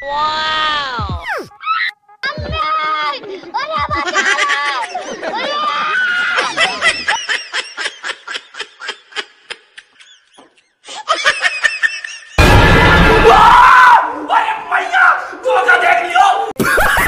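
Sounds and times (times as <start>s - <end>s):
person laughing: 4.0s - 12.2s, 16.6s - 17.0s.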